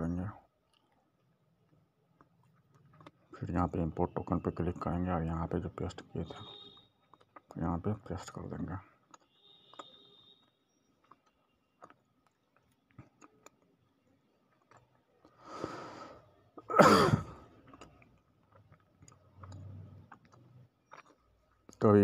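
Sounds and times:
quiet low hum: 10.0 - 22.0.

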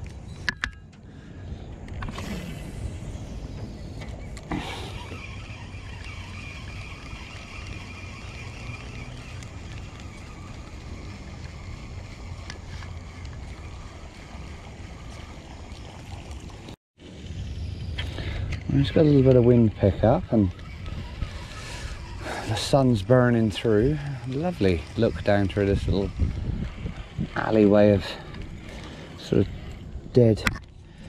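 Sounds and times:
sharp reel click: 4.0 - 14.1
fishing reel winding: 4.5 - 16.2, 18.8 - 29.8.

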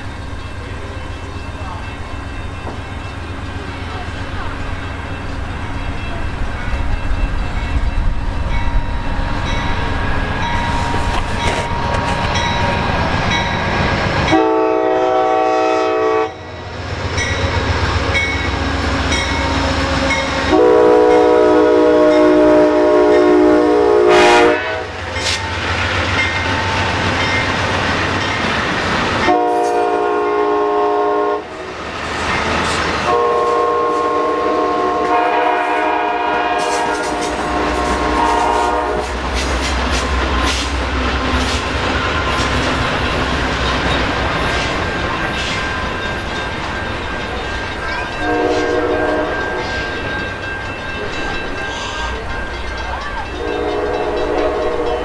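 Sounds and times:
train rumble: 0.0 - 55.0
wheels clacking over rail joints: 9.5 - 14.3, 36.5 - 55.0
train horn blasts: 14.2 - 16.6, 19.0 - 25.3, 29.2 - 31.7, 33.0 - 39.3, 48.1 - 49.8, 53.3 - 55.0.

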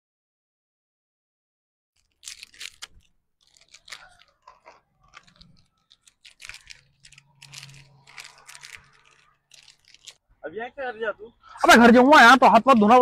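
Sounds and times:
crunching and chewing: 2.0 - 10.2.

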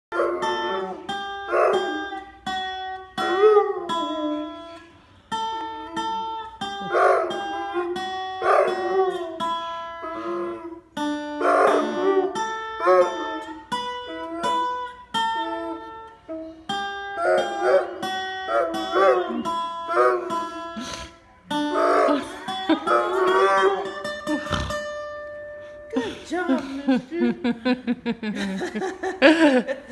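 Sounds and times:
dog howling: 0.1 - 4.8, 5.6 - 16.4, 17.0 - 20.7, 21.5 - 24.2
guitar plucked: 0.1 - 26.1.

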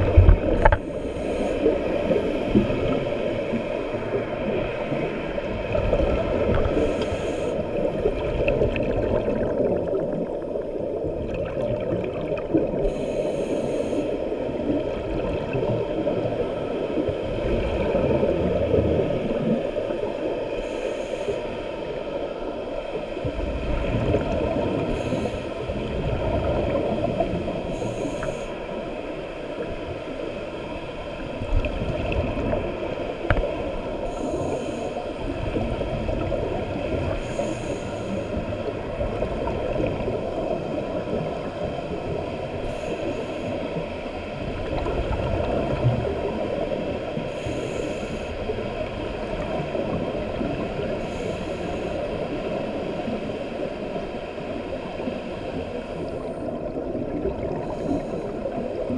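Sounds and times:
underwater regulator bubbles: 0.0 - 4.3.

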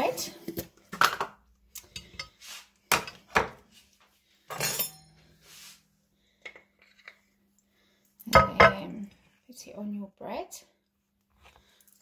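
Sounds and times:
cutlery and kitchenware clinking: 4.5 - 5.2
kitchenware rattle: 8.4 - 9.0.

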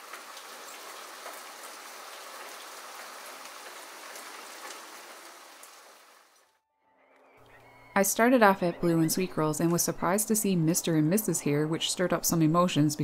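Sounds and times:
steady rain falling: 0.0 - 6.5.

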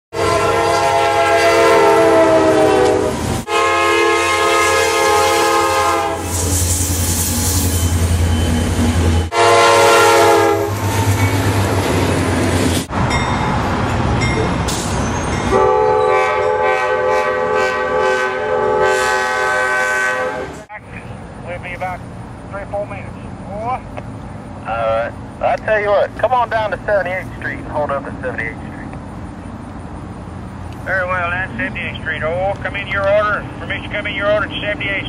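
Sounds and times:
locomotive air horn blasts: 0.1 - 6.6, 9.3 - 11.2, 15.5 - 20.6
rushing train noise: 0.1 - 35.0
diesel engine rumble: 20.7 - 35.0.

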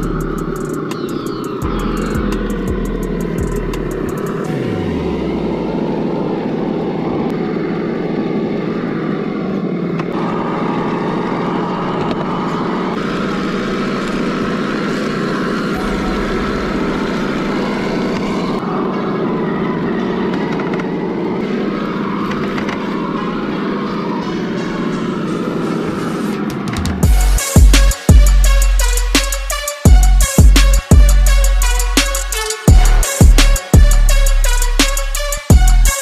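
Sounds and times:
electric motor hum: 0.0 - 19.5.

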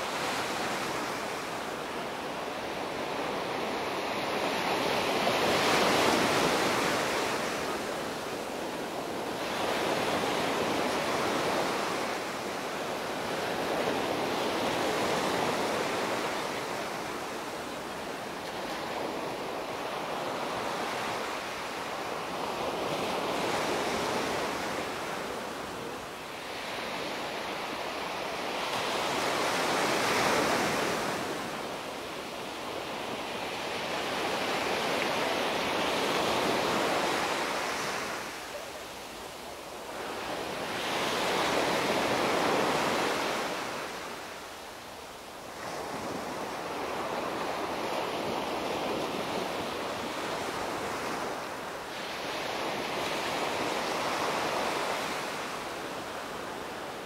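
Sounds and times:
small waves breaking on beach: 0.0 - 57.0.

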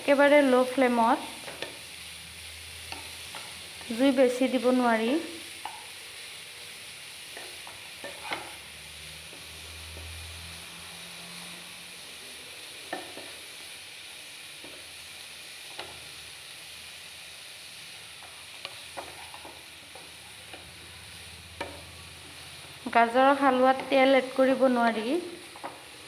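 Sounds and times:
carrots sizzling in a pan: 0.0 - 26.0
wooden spatula stirring: 18.6 - 20.8.

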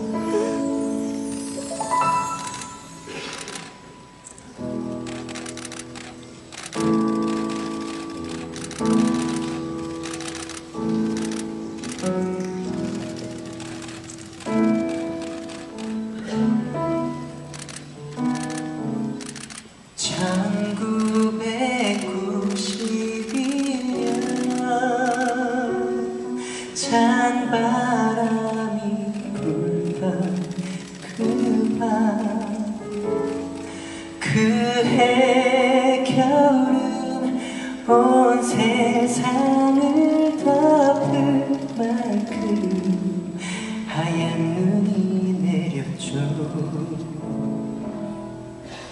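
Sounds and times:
orchestra playing: 0.0 - 4.2
man singing: 20.0 - 33.1, 34.2 - 47.7.

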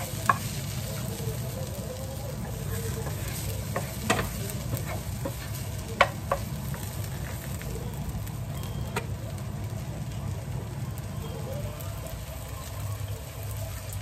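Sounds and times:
spatula knocking on pan: 0.0 - 0.5, 2.8 - 6.8
wooden spatula stirring: 0.0 - 7.7
rice frying in a pan: 0.0 - 14.0.

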